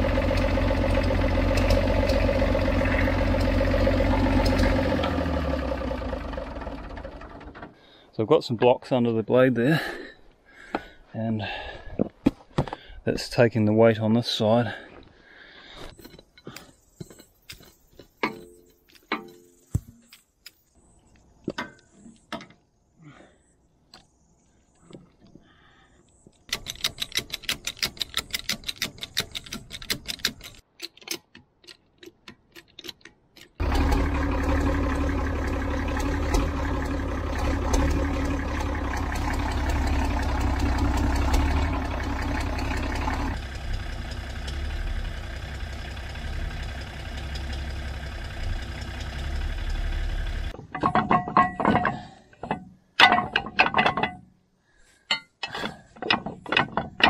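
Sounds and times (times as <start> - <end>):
bulldozer diesel engine running: 0.0 - 7.9, 33.6 - 50.6
sharp metal knocks: 17.0 - 20.0, 50.5 - 54.3.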